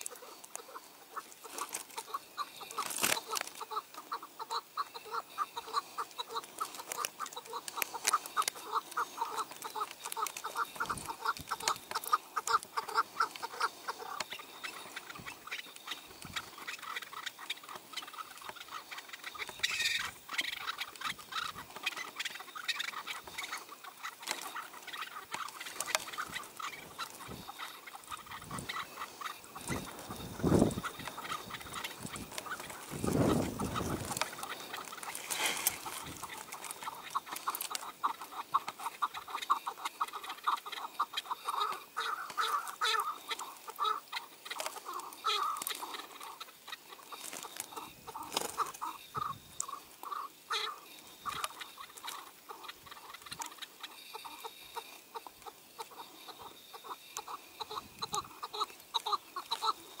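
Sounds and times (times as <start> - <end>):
partridges clucking: 0.0 - 59.9.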